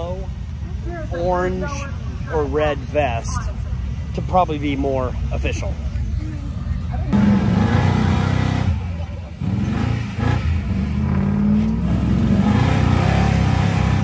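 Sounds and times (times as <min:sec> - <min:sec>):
truck engine revving hard: 0:07.1 - 0:14.0.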